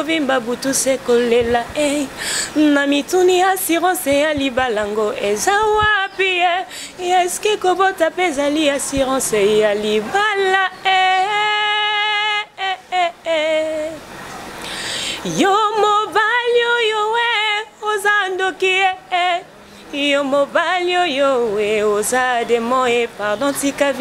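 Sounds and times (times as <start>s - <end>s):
woman singing unaccompanied: 0.0s - 14.1s, 15.1s - 24.0s.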